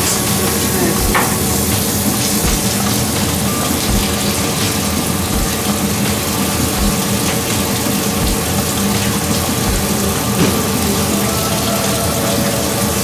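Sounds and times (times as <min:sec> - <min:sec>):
machinery hissing and humming: 0:00.0 - 0:13.0
soft low thump: 0:02.4 - 0:02.7, 0:03.8 - 0:04.1.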